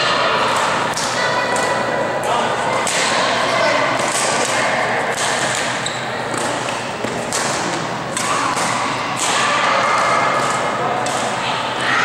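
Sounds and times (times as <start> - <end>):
murmur of voices: 0.0 - 12.0
rackets hitting shuttlecock: 4.0 - 9.5.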